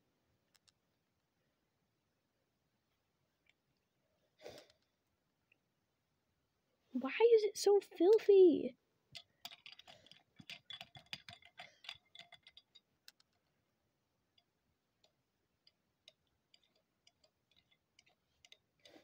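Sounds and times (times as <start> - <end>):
toy scratching plastic box: 9.4 - 13.4, 16.0 - 19.0.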